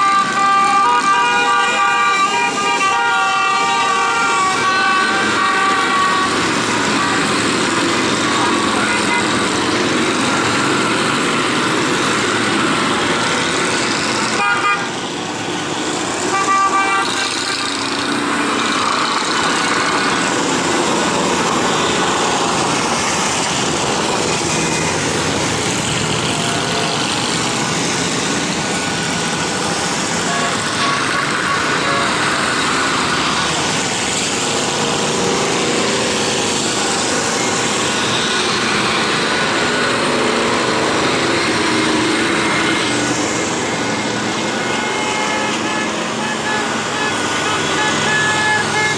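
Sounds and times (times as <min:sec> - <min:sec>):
motorcycle horns tooting: 0:00.0 - 0:09.8, 0:14.3 - 0:15.0, 0:16.2 - 0:17.9, 0:30.2 - 0:33.8, 0:44.5 - 0:48.9
motorcycle engines riding past: 0:00.2 - 0:48.9.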